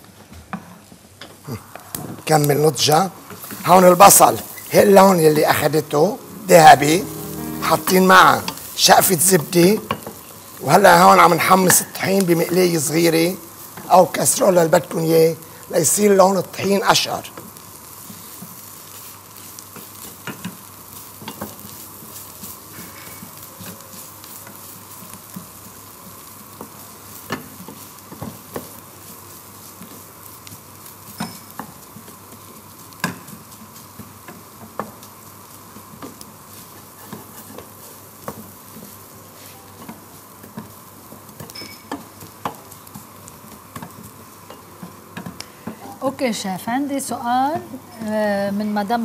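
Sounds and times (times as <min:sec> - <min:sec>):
gas flame hiss: 0:00.7 - 0:48.0
wooden spoon scraping a pan: 0:36.6 - 0:37.9.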